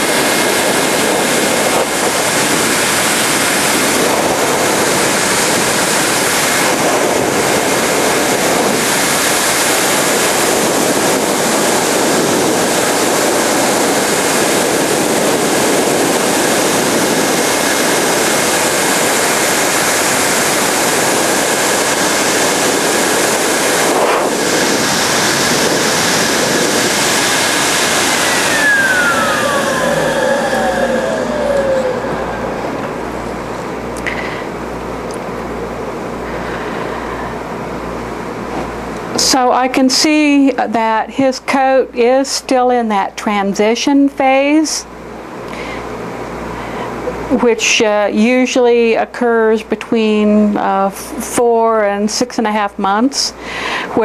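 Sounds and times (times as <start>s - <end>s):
grooming blower rushing air: 0.0s - 39.5s, 44.9s - 47.4s.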